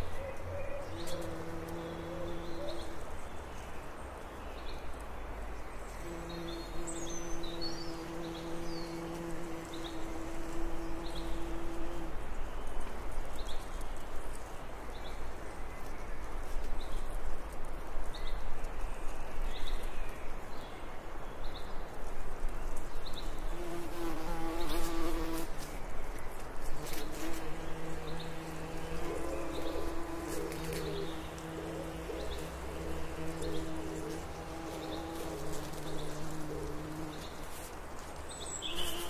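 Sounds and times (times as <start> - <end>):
bees buzzing: 26.8 - 37.6
bird chirping: 38.3 - 39.0.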